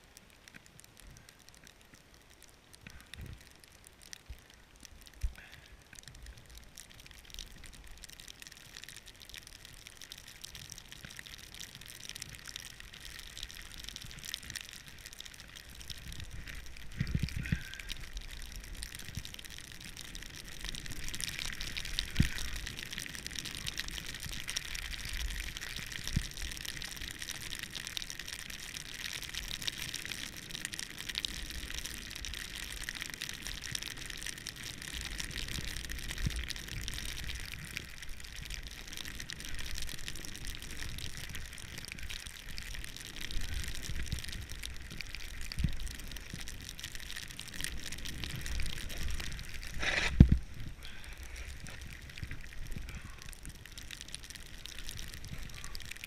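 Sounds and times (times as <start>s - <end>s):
snowboard hissing through powder: 49.6s - 50.4s.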